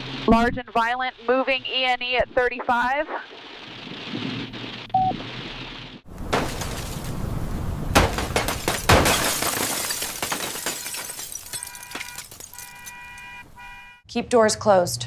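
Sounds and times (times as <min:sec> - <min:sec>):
rain hissing on a car: 0:02.7 - 0:06.1
glass cracking and shattering: 0:06.3 - 0:07.2, 0:07.9 - 0:13.1.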